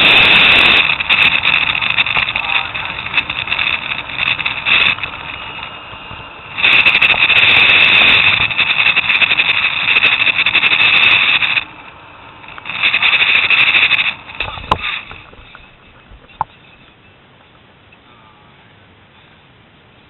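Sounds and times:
zipline trolley squealing whir: 0.0s - 11.8s.

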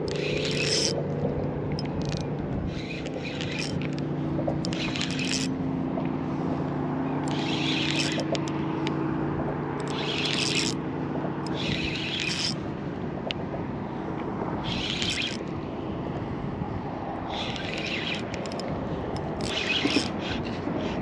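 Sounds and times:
fishing reel cranking: 0.0s - 5.6s, 7.2s - 9.0s, 9.8s - 10.8s, 11.4s - 12.7s, 14.6s - 15.5s, 17.2s - 21.0s.

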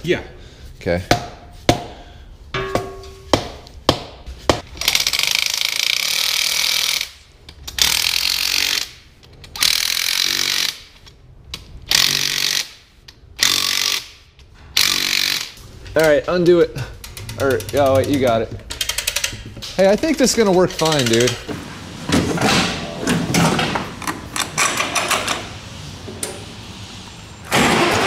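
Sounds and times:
hammer knocking on metal: 2.6s - 4.2s.

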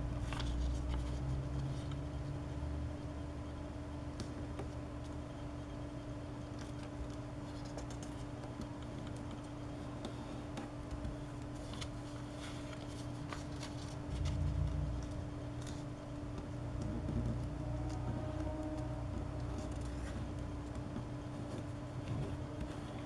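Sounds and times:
steady low hum: 0.0s - 23.0s
paper rustling and crinkling: 0.2s - 2.0s, 6.5s - 15.9s
low rumble: 14.0s - 15.8s.

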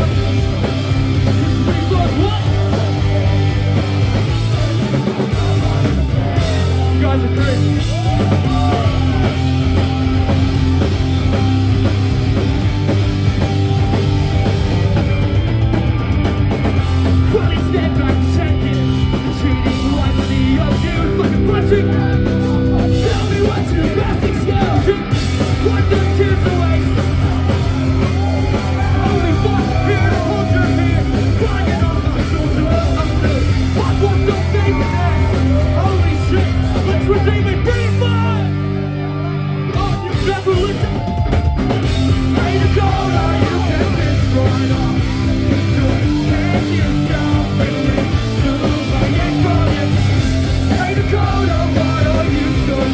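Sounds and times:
bass guitar: 0.0s - 52.9s
drums: 0.0s - 52.9s
electric guitar: 0.0s - 52.9s
person singing: 4.2s - 10.4s, 17.2s - 38.5s, 42.0s - 52.9s.

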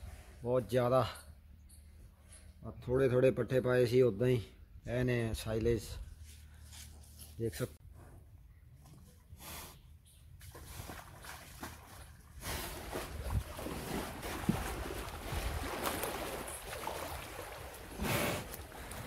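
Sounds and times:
water sloshing and splashing: 10.4s - 19.0s.

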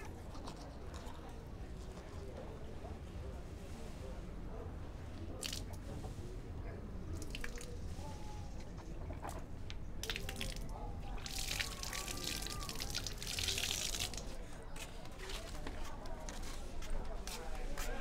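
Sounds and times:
water pouring and splashing: 10.0s - 14.4s.

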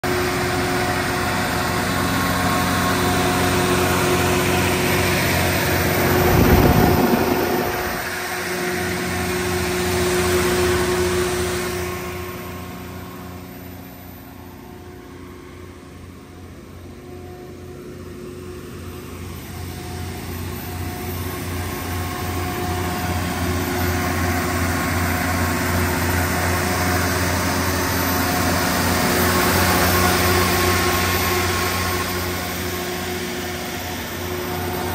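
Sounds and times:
diesel generator humming: 0.0s - 34.9s
low whoosh: 5.6s - 8.5s.

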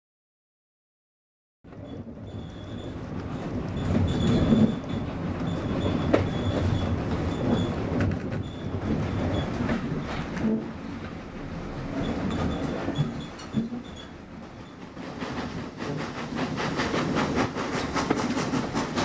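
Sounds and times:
train wheels rumbling on track: 1.7s - 19.0s
wheels clicking over rail joints: 1.7s - 19.0s
faint high squeal: 1.8s - 3.0s.

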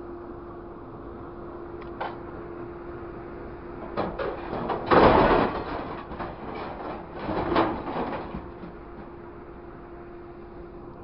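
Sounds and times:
scrap metal crashing into truck bed: 3.8s - 9.1s.

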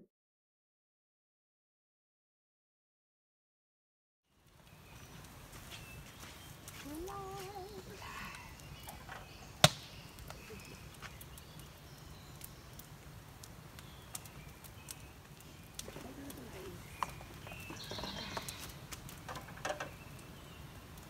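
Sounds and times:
small ticks and crackles: 4.3s - 21.0s
sharp snap: 9.6s - 9.9s
faint bird chirps: 13.8s - 18.8s.

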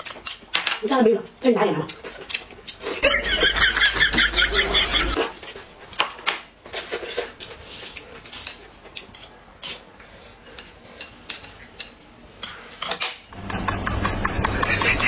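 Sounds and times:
chopsticks clicking on plates: 10.5s - 13.8s.

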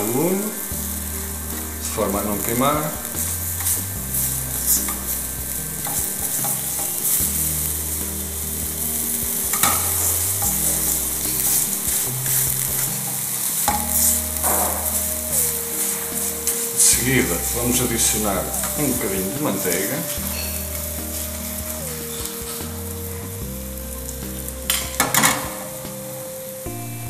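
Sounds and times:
sugar sizzling in a pan: 0.0s - 26.9s
metal fork scraping a pan: 1.5s - 16.8s.

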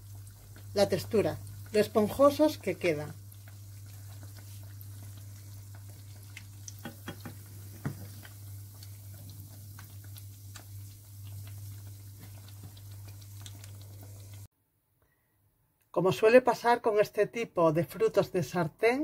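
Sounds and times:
dough frying in oil: 0.0s - 14.5s.

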